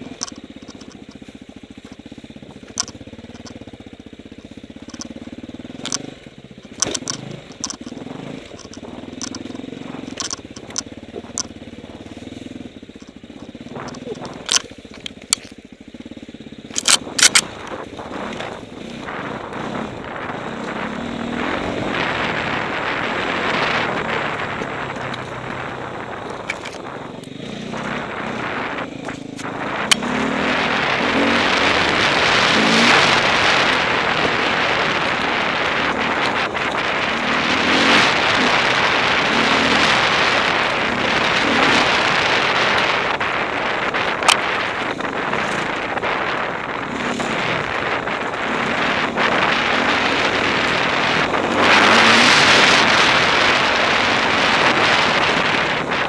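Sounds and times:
motorcycle engine running: 0:00.0 - 0:56.0
rushing noise: 0:16.8 - 0:56.0.

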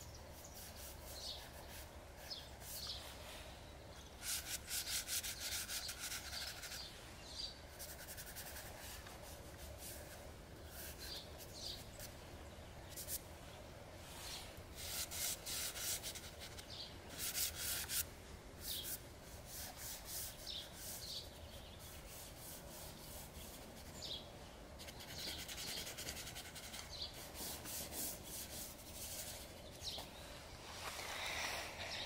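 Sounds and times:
pastel scratching on paper: 0:04.2 - 0:06.9, 0:07.7 - 0:12.1, 0:14.8 - 0:18.0, 0:24.8 - 0:30.0.

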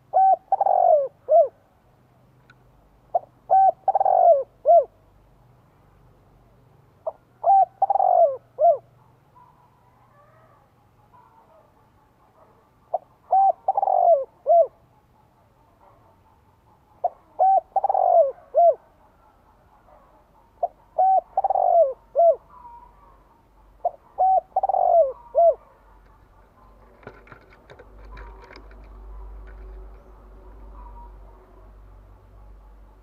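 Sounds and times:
dove cooing: 0:00.0 - 0:01.7, 0:03.1 - 0:05.0, 0:07.0 - 0:33.0
faint clicks and rustling: 0:26.0 - 0:30.7.

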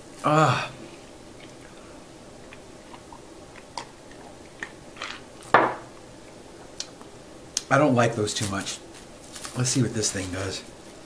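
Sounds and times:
glass knocking on table: 0:05.5 - 0:05.8.

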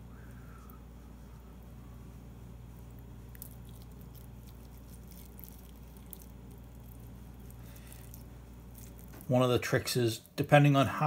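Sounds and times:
steady low hum: 0:00.0 - 0:11.0
wet squishing of meat on skewer: 0:02.7 - 0:10.4.

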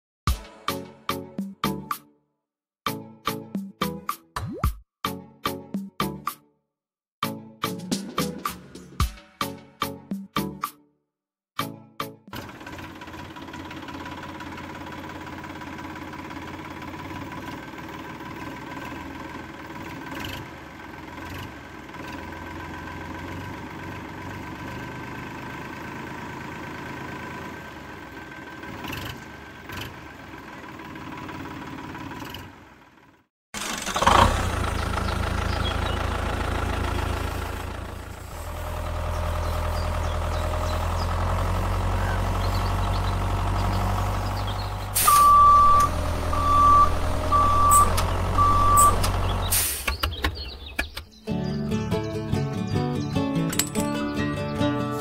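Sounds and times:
tractor engine running: 0:12.3 - 0:54.1
deep engine drone: 0:33.7 - 0:49.7.

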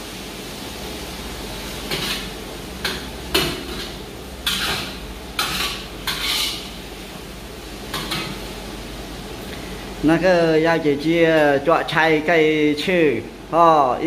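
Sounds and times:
metal ladle scraping a wok: 0:01.8 - 0:06.8.

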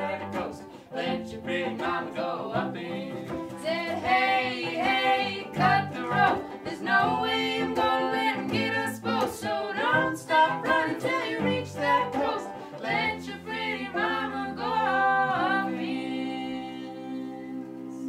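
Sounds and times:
banjo: 0:00.0 - 0:18.0
cello: 0:00.0 - 0:18.0
man and woman singing harmony: 0:00.0 - 0:18.0.

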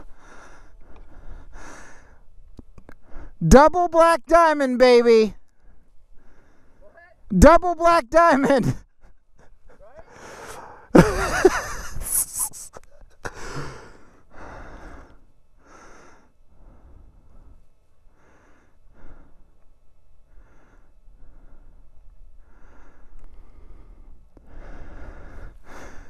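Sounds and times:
man breathing hard: 0:00.0 - 0:02.3, 0:02.9 - 0:03.4, 0:05.6 - 0:06.9, 0:09.5 - 0:11.0, 0:13.2 - 0:19.6, 0:20.2 - 0:26.0.

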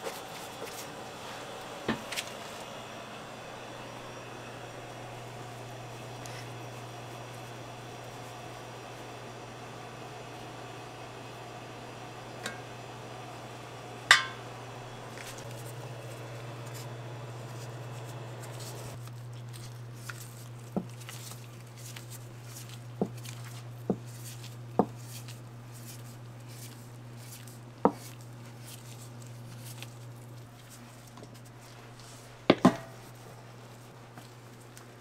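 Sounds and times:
steady low hum: 0:00.0 - 0:35.0
metallic clank: 0:14.1 - 0:14.5.

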